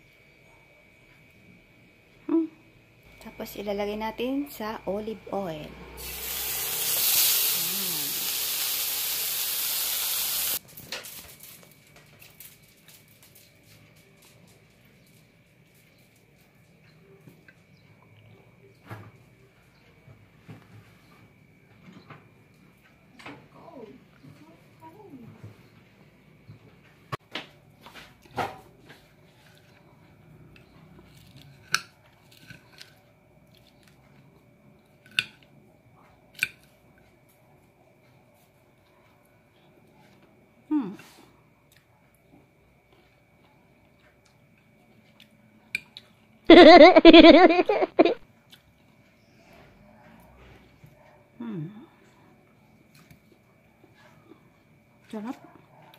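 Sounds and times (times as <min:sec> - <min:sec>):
fish frying in oil: 0:05.9 - 0:10.6.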